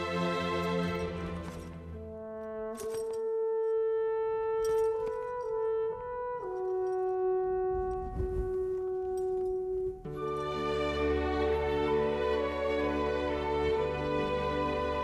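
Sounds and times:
solo horn playing slow melody: 2.0 - 10.4.

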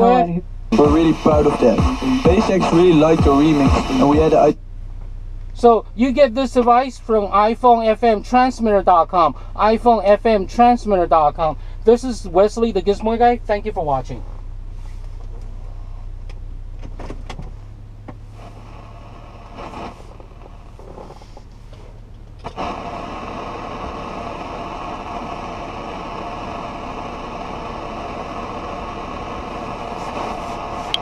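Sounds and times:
low steady car hum: 0.0 - 31.0
steady rushing noise: 0.7 - 4.6, 21.9 - 31.0.

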